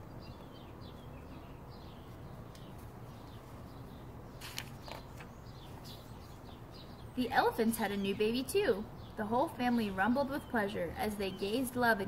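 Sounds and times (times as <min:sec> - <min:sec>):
small birds chirping: 0:00.0 - 0:12.0
book page rustling: 0:04.4 - 0:05.8.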